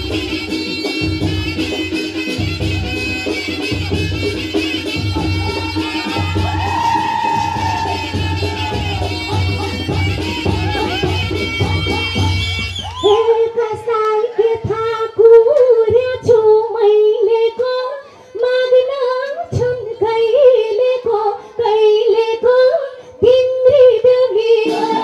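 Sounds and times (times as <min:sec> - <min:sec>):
woman singing into a microphone: 0:13.0 - 0:25.0.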